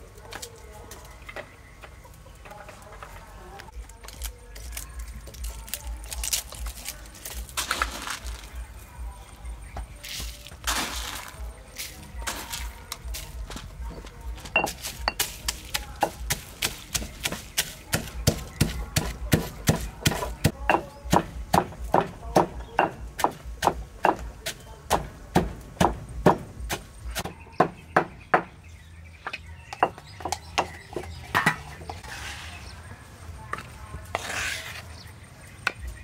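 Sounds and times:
stone pestle pounding in mortar: 14.5s - 28.5s.

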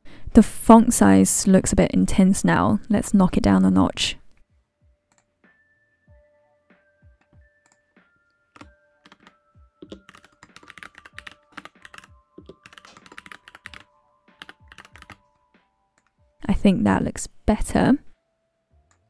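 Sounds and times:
typing on computer keyboard: 8.6s - 15.2s.

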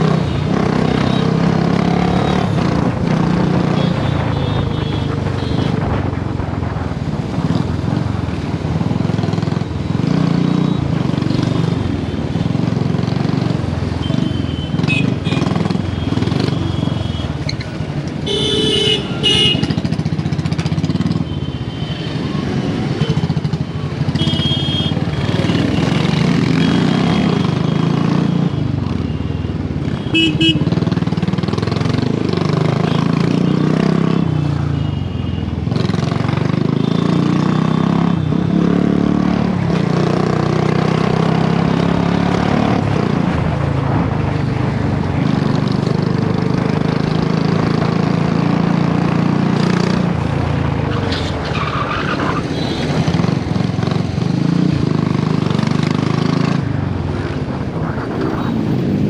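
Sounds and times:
vehicle horns honking: 18.2s - 19.8s, 24.2s - 25.8s, 30.0s - 30.7s.

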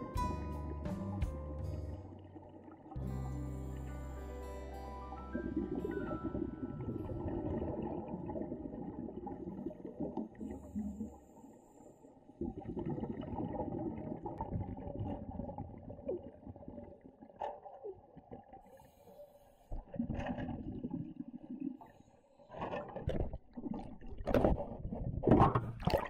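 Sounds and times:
underwater exhaled bubbles: 5.3s - 19.1s, 19.7s - 26.0s.

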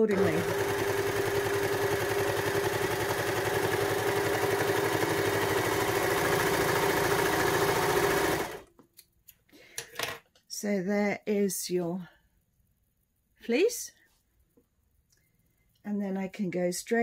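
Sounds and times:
overlocker stitching: 0.0s - 8.7s.

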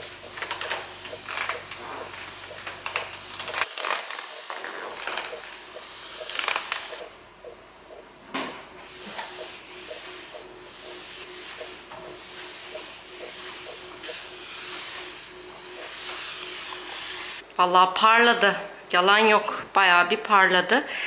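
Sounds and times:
mop swishing over tile floor: 0.0s - 7.0s, 9.0s - 17.4s.

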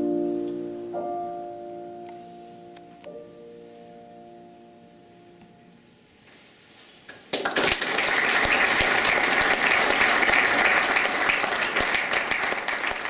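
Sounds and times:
audience applause: 7.3s - 13.0s.

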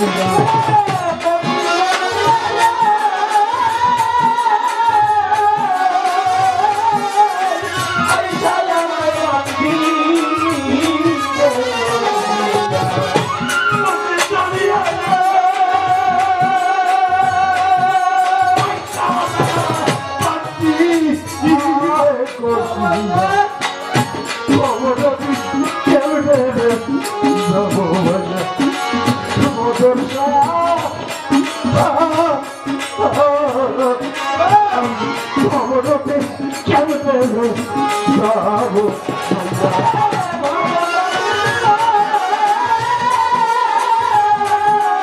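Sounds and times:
drum strokes: 0.0s - 45.0s.

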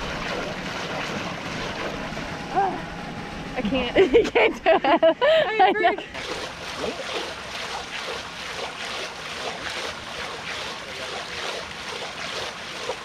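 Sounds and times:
fish splashing in water: 0.0s - 2.4s, 6.2s - 13.0s.

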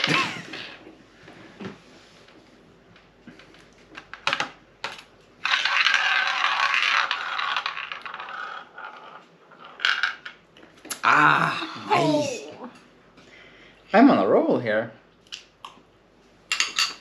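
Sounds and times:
ball rattling in roulette wheel: 5.4s - 10.4s.

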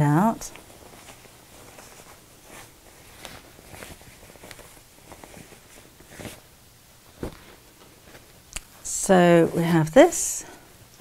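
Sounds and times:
fabric rustling and rubbing: 0.1s - 8.5s.

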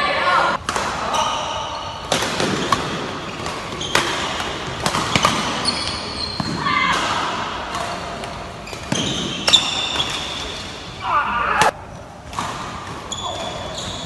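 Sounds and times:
rackets striking shuttlecock: 2.0s - 5.8s
shoes squeaking on floor: 3.2s - 4.4s, 5.1s - 6.8s, 8.6s - 10.6s, 13.1s - 14.0s.

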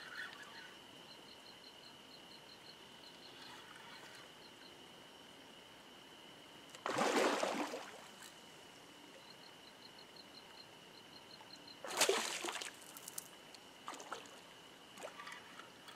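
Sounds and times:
fish splashing at water surface: 6.8s - 8.0s, 11.9s - 13.2s.

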